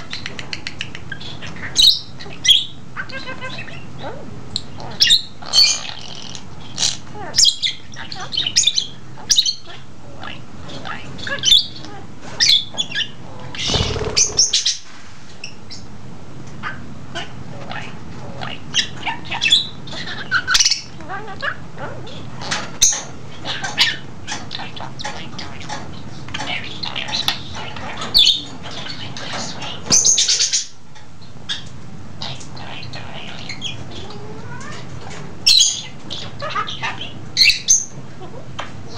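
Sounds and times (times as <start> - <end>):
budgie chirping and squawking: 0.0 - 14.9
noisy rustle: 13.6 - 15.7.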